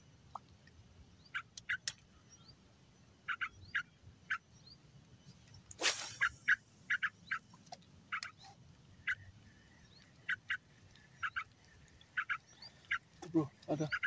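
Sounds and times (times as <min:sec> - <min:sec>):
bird giving sharp calls: 0:03.3 - 0:04.4, 0:05.8 - 0:07.4, 0:10.2 - 0:14.0
reeds rustling: 0:05.7 - 0:06.6.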